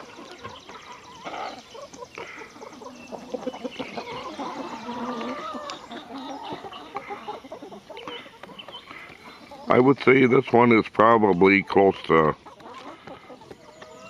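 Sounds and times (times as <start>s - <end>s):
hens clucking: 0.0s - 14.0s
beaks pecking on wood: 7.9s - 11.6s.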